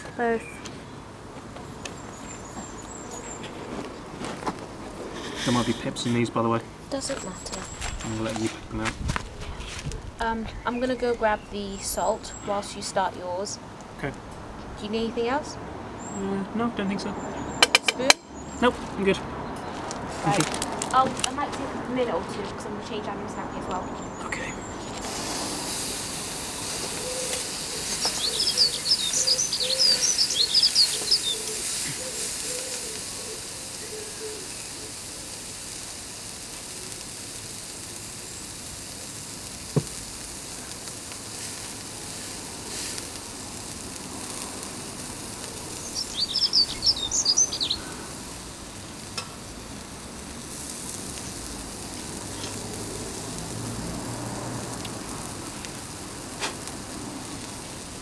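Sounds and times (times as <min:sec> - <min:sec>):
bird chirping: 0:01.6 - 0:04.1, 0:26.4 - 0:35.0, 0:45.5 - 0:48.2
steak sizzling on a grill: 0:06.9 - 0:13.5, 0:20.2 - 0:58.0.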